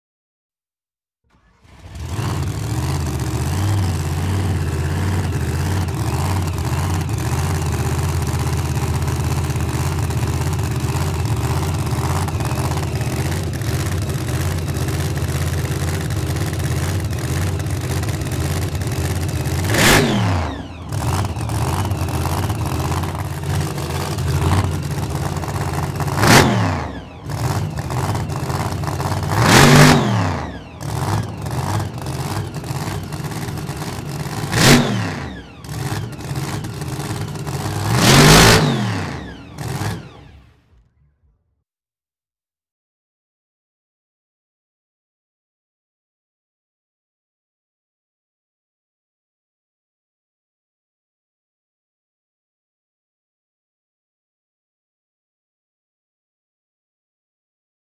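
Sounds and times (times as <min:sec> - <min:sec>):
car engine idling and revving: 0:01.3 - 0:41.1.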